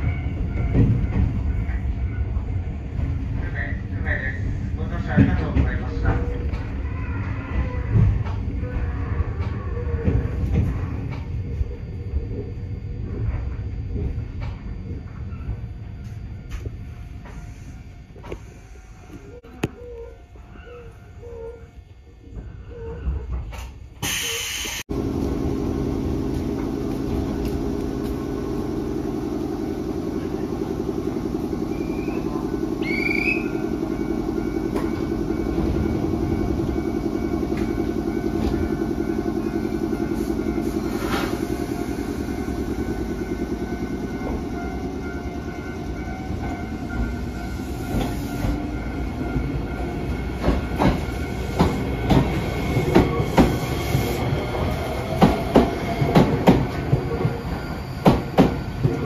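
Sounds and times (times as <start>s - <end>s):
train equipment hum: 0.0s - 59.0s
train motor tone rising: 24.9s - 59.0s.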